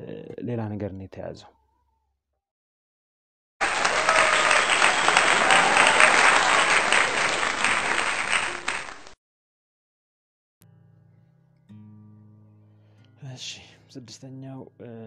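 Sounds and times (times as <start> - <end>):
crowd applause: 3.6 - 9.2.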